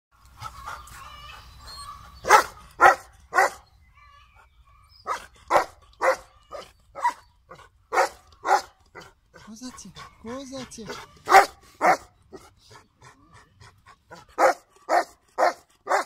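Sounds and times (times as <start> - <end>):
dogs barking: 1.9 - 3.7, 5.0 - 16.0
dog whining: 5.1 - 7.6.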